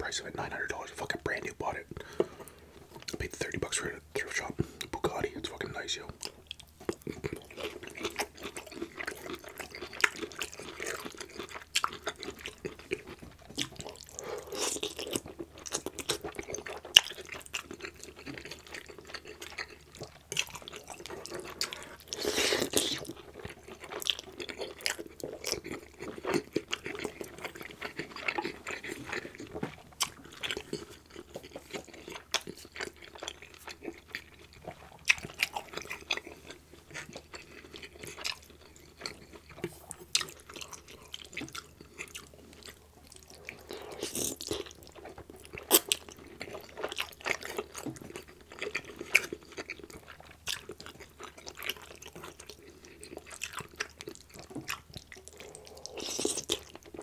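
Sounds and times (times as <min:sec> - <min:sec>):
chewing and slurping noodles: 0:06.2 - 0:57.0.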